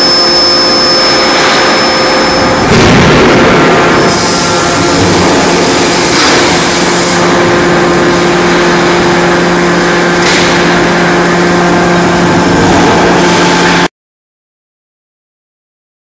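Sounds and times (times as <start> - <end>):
forging production line running: 0.0 - 13.9.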